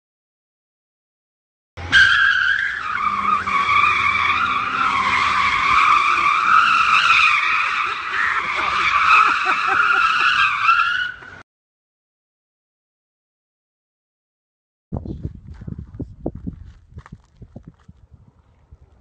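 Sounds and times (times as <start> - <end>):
tyres squealing: 1.8 - 11.4.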